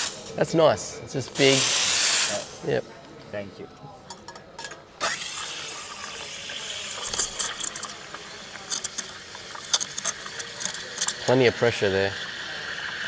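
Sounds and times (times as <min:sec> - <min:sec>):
steam wand steaming milk: 0:00.0 - 0:00.4, 0:01.4 - 0:02.8, 0:05.0 - 0:13.0.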